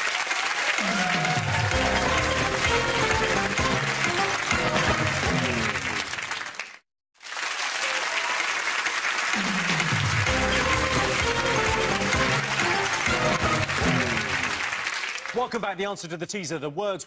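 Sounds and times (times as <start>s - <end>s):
audience applauding: 0.0s - 15.6s
theme music: 0.8s - 6.2s, 9.3s - 14.8s.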